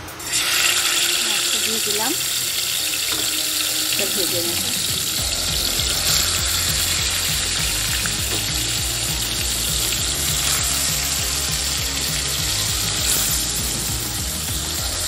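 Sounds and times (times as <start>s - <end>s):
fish frying in hot oil: 0.0s - 15.0s.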